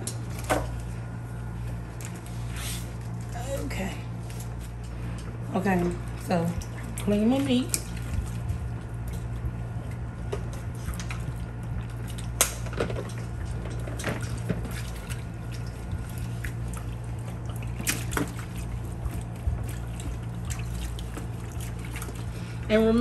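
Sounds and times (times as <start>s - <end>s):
water splashing in plastic tub: 6.0s - 23.0s.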